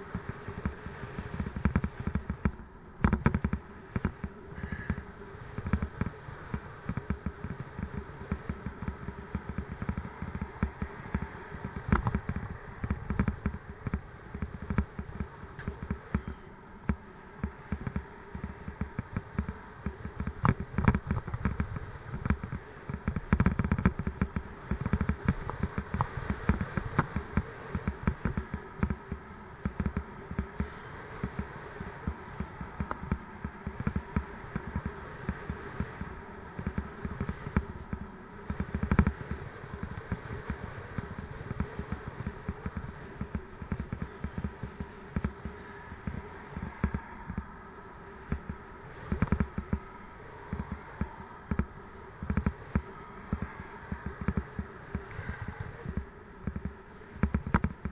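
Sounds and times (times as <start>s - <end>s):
bicycle rattling and knocking: 0.0s - 47.6s, 48.2s - 57.9s
road hum: 0.0s - 57.9s.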